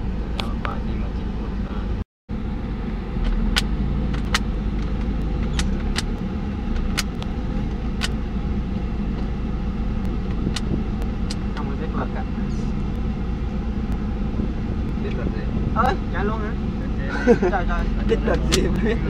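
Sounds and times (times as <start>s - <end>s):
car engine and road rumble: 0.0s - 19.0s
sharp clicks: 3.2s - 6.2s, 6.8s - 7.3s.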